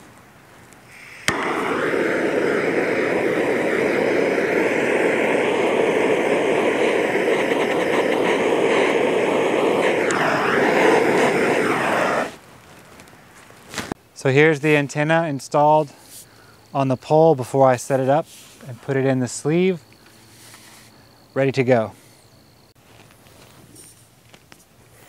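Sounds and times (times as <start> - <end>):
gas torch hissing: 0.8 - 12.4, 17.9 - 22.3
gas torch lighter click: 0.9 - 12.3.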